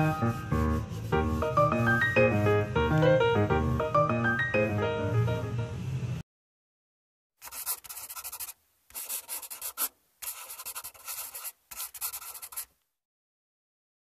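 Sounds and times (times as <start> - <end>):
pen scratching on paper: 0.0 - 2.0, 7.4 - 12.7.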